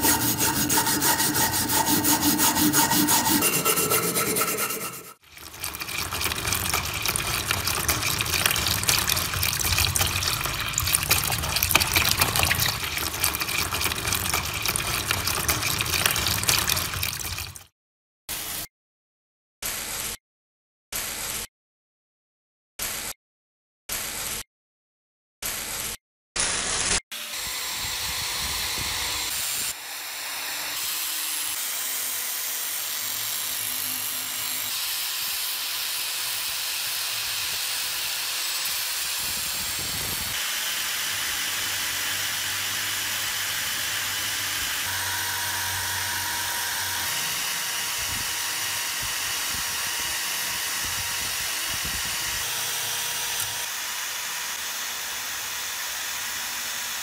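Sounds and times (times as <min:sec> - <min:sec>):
wire brush scrubbing steel: 0:00.0 - 0:17.5
drill motor whine: 0:27.2 - 0:30.8, 0:37.9 - 0:57.0.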